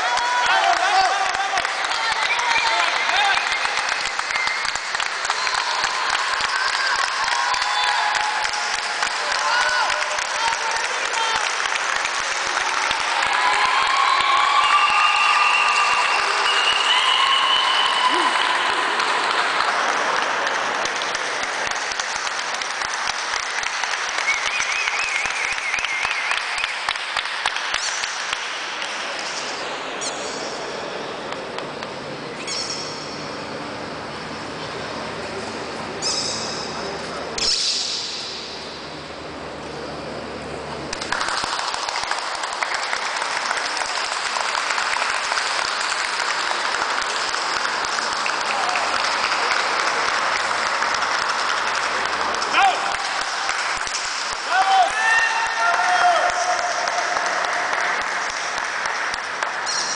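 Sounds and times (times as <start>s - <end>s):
spectators applauding: 0.0s - 30.6s, 38.0s - 59.9s
wavering whistle: 14.6s - 18.4s.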